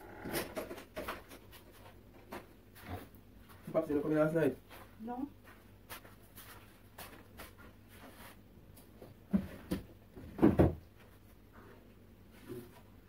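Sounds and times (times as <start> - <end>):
dull thumps and knocks: 9.0 - 10.8.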